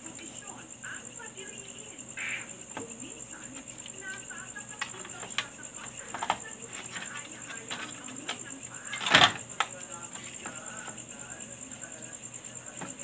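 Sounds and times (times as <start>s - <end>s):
steady high whine: 0.0s - 13.0s
circuit board clicks and knocks: 3.8s - 9.8s.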